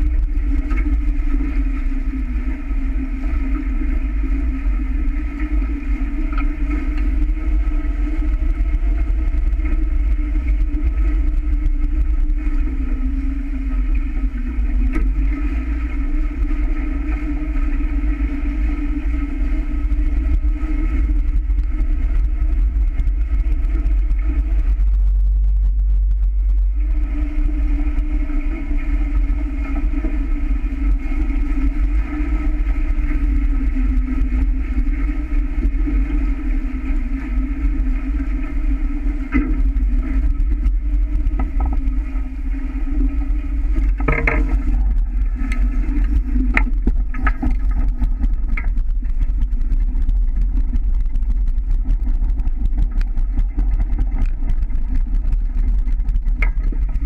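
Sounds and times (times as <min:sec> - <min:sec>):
water rushing along hulls: 0:00.0 - 0:57.0
wind rumble on microphone: 0:00.0 - 0:57.0
knocks: 0:44.0 - 0:44.5.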